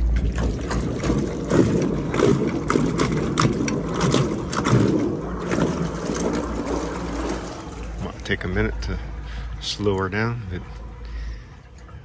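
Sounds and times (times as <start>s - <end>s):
small splashes: 0.0s - 8.3s
water churning and slapping: 0.0s - 9.2s.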